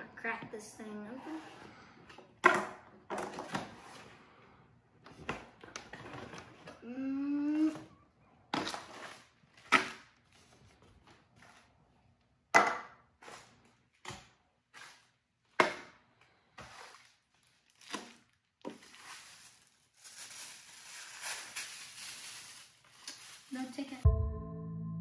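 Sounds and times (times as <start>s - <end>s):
tissue paper crinkling: 16.7s - 24.0s.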